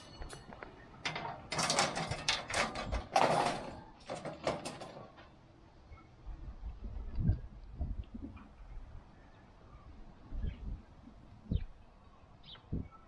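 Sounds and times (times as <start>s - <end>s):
wire rack clattering on metal: 0.0s - 5.3s.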